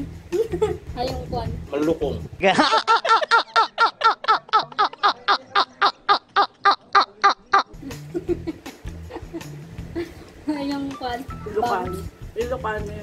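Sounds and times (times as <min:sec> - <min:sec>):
man cackling laughter: 0:02.4 - 0:10.1.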